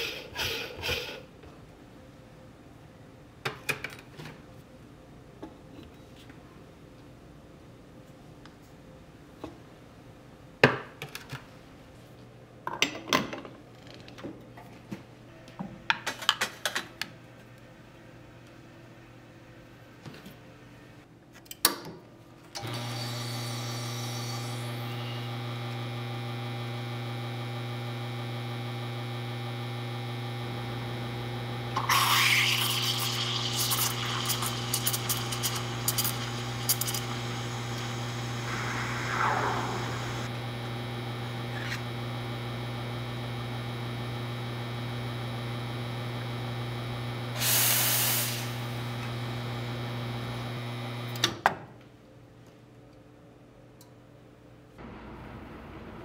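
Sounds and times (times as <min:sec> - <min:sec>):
espresso machine pump humming: 0:22.6 - 0:51.2
steam wand hissing: 0:31.9 - 0:40.3, 0:47.4 - 0:48.6.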